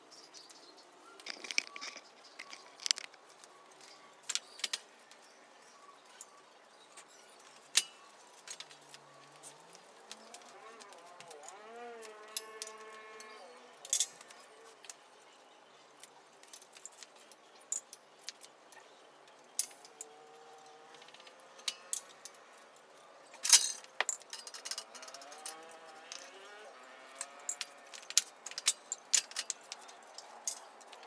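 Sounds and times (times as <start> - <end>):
metallic clinks and knocks: 1.2 - 3.2, 19.5 - 31.0.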